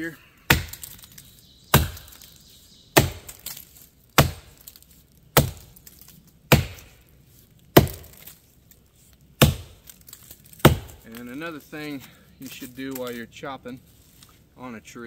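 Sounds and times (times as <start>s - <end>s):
axe chopping wood: 0.5s - 2.3s, 3.0s - 4.8s, 5.4s - 7.0s, 7.8s - 8.3s, 9.4s - 9.9s, 10.6s - 11.2s.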